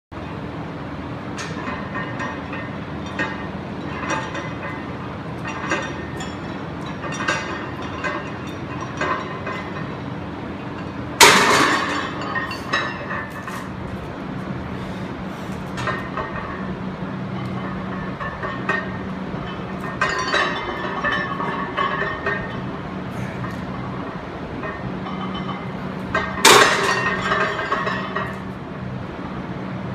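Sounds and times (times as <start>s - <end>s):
steady low hum: 0.1s - 29.9s
weight plates clinking: 1.4s - 10.0s, 10.6s - 13.7s, 15.7s - 22.8s, 23.4s - 28.5s
loud metal clank: 11.2s - 13.7s, 24.6s - 28.4s.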